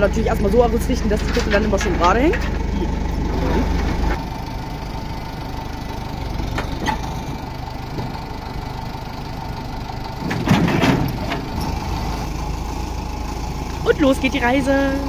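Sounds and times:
metallic clanking and crunching: 0.0s - 5.4s, 6.3s - 8.6s, 10.2s - 12.3s
diesel engine idling: 0.0s - 15.0s.

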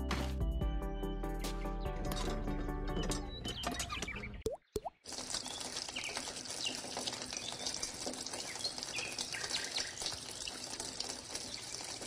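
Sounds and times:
bird chirps: 0.6s - 10.6s
water pouring into plastic channel: 5.0s - 12.0s.

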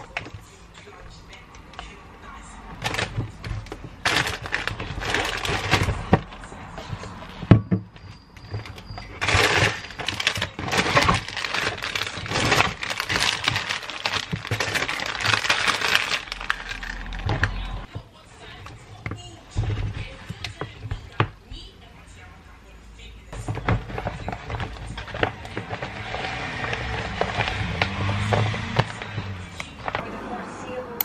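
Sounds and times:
plastic packets crinkling: 2.7s - 7.5s, 8.4s - 20.8s, 23.4s - 30.1s.

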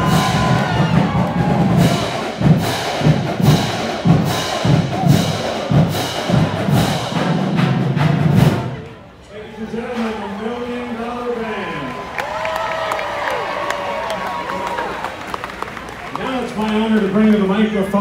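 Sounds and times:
marching drumline cadence: 0.0s - 9.2s.

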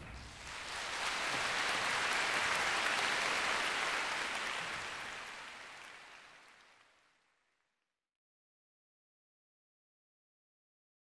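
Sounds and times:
audience applauding: 0.3s - 7.4s.

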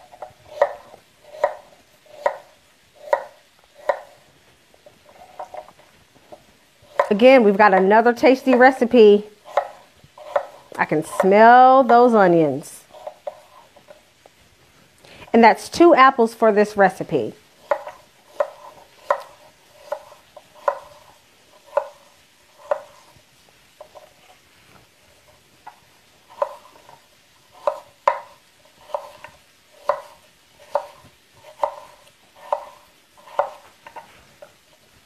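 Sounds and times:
knife chopping on wooden board: 0.0s - 4.2s, 6.9s - 8.8s, 9.4s - 12.0s, 17.6s - 23.1s, 26.3s - 34.0s.

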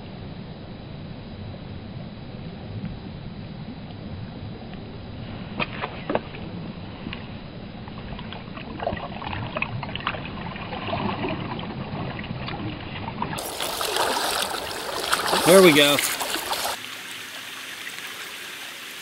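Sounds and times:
stream water sloshing and splashing: 5.6s - 19.0s.

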